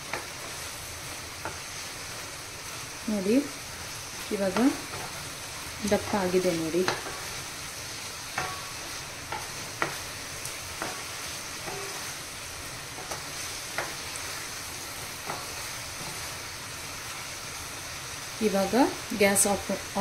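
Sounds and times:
steady sizzle: 0:00.0 - 0:20.0
wooden spatula scraping a pan: 0:04.3 - 0:07.5, 0:08.4 - 0:16.4
spatula knocking on metal pan: 0:08.4 - 0:08.7.

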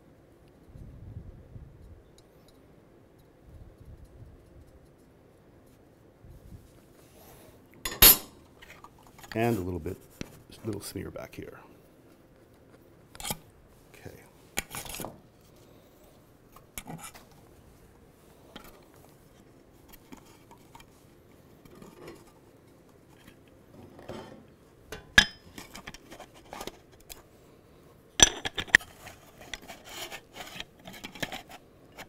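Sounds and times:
metal parts clinking and scraping: 0:07.8 - 0:09.4.

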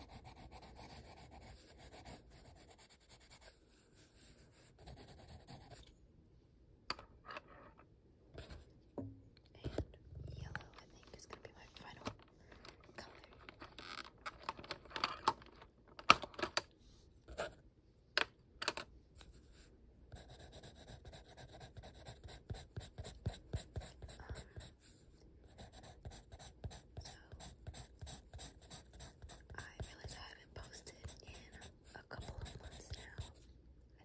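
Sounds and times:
coloured pencil scratching on paper: 0:00.0 - 0:05.9, 0:19.3 - 0:33.4.

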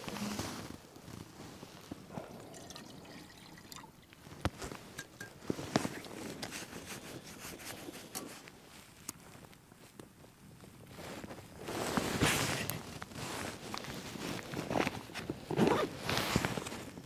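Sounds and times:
liquid dripping: 0:02.2 - 0:06.1
flask lid and cup clicking: 0:05.0 - 0:06.0.

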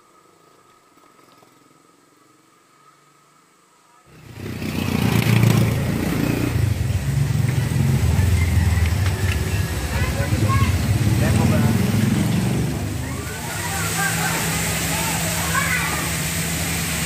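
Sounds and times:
motorcycle engine droning: 0:04.1 - 0:17.0.

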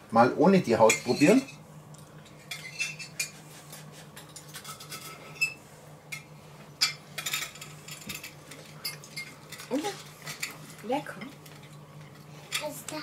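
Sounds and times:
knife and fork scraping a plate: 0:00.9 - 0:01.5, 0:02.3 - 0:05.6.

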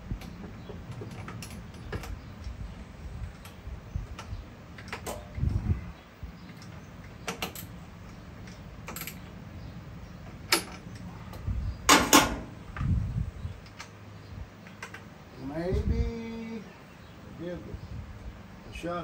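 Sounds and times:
tools clicking and knocking: 0:10.2 - 0:11.1.

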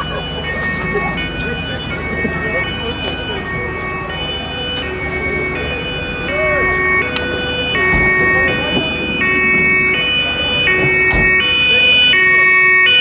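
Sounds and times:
two-tone fire engine siren: 0:00.0 - 0:13.0.

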